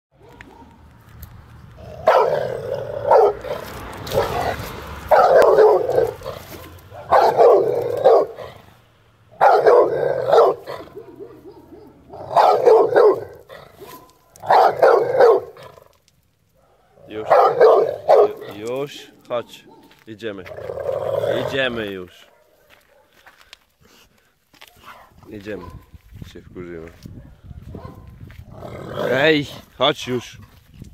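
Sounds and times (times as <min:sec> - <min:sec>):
dog barking: 0:00.2 - 0:00.9, 0:02.0 - 0:08.6, 0:09.4 - 0:15.8, 0:16.6 - 0:18.6, 0:19.3 - 0:20.0, 0:22.2 - 0:23.3, 0:24.6 - 0:26.0, 0:27.2 - 0:28.2, 0:30.0 - 0:30.3.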